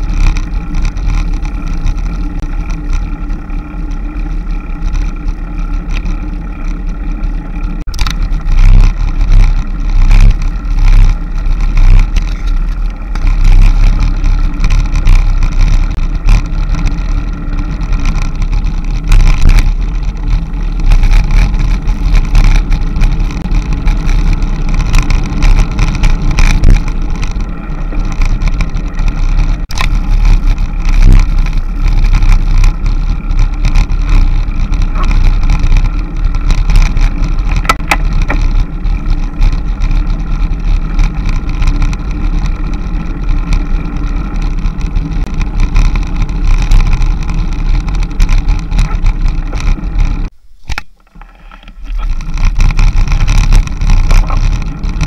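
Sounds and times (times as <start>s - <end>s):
low rumble: 0.0s - 50.6s, 51.2s - 55.0s
vehicle engine drone: 0.0s - 55.0s.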